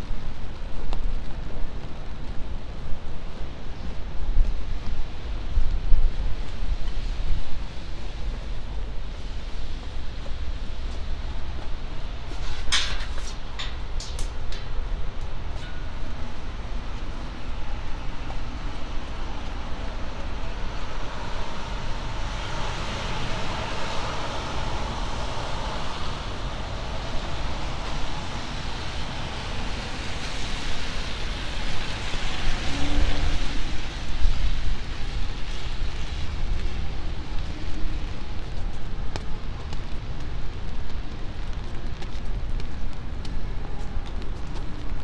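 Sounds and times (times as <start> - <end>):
steady low traffic rumble: 0.0 - 45.0
car tyres hissing on wet pavement: 16.8 - 44.0.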